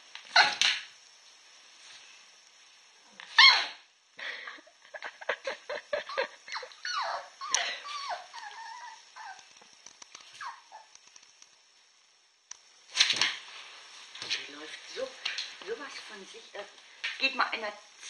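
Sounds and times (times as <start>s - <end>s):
puppy yapping and whining: 0.3s - 0.7s, 3.3s - 3.8s, 6.5s - 9.5s, 10.3s - 10.9s.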